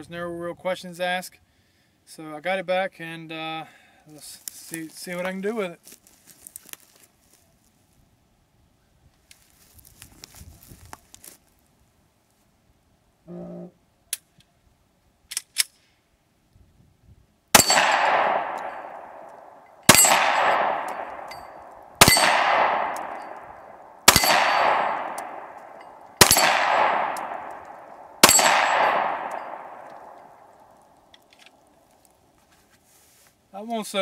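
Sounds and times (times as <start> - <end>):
bullet ringing off steel plate: 17.6 - 30.4
pistol shots: 17.6 - 30.6.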